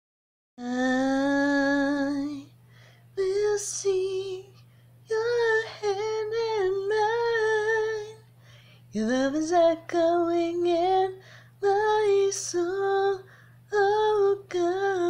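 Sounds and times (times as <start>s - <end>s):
woman singing unaccompanied: 0.6s - 2.5s, 3.2s - 8.2s, 8.9s - 15.0s
faint low hum: 0.6s - 15.0s.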